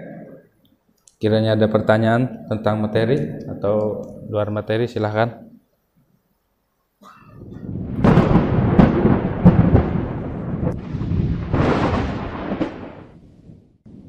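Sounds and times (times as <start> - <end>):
deep booming hits: 7.3 - 14.0
thunder-like rumble: 7.3 - 14.0.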